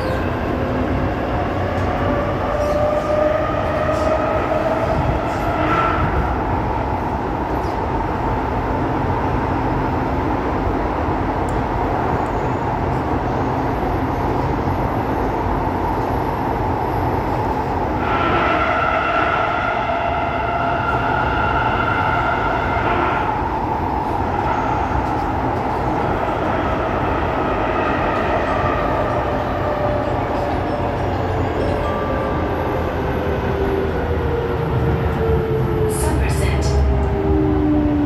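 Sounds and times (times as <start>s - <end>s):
train rumble and rail noise: 0.0s - 38.0s.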